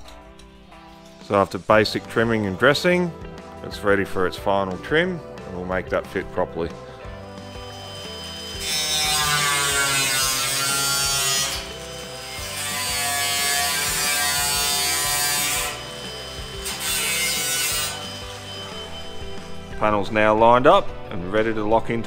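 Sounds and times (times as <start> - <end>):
angle grinder cutting sheet steel: 7.2 - 19.8.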